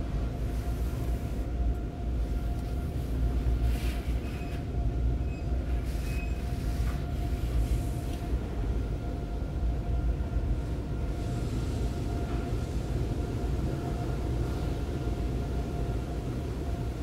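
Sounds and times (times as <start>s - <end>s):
car wash low rumble: 0.0s - 17.0s.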